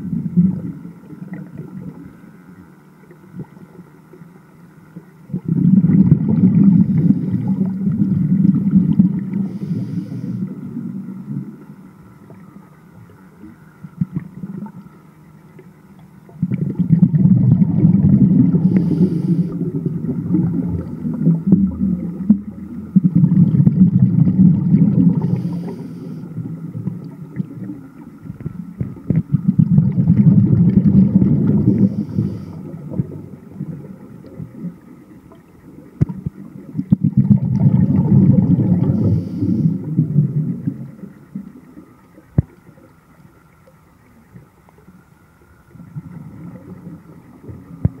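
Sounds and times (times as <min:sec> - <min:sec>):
scuba exhaled bubbles rushing: 0:00.0 - 0:02.2, 0:05.3 - 0:12.5, 0:16.3 - 0:42.9, 0:45.7 - 0:48.0.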